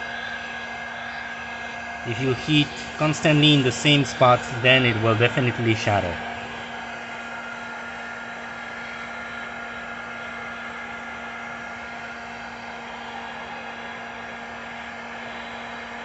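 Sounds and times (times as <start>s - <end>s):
heat gun blowing air: 2.3s - 10.6s.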